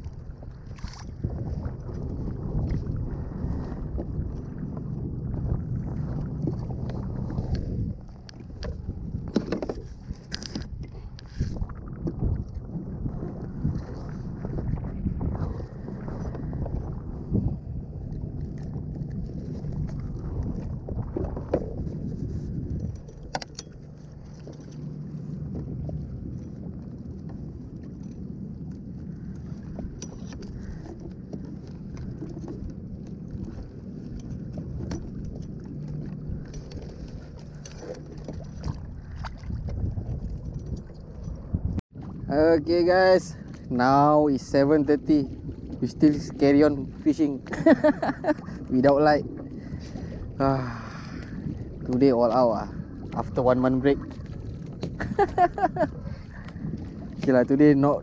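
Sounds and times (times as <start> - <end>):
water slapping against hull: 0.0 - 58.0
wind rumbling on microphone: 0.0 - 58.0
clicks from handling fishing tackle: 9.3 - 11.3
gear clicks and knocks: 22.7 - 24.9.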